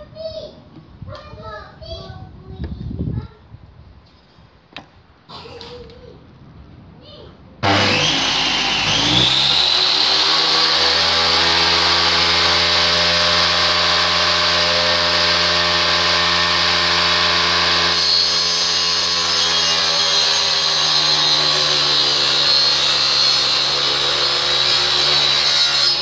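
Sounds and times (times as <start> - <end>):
saw blade ripping wood: 7.6 - 26.0
table saw motor hum: 7.6 - 26.0.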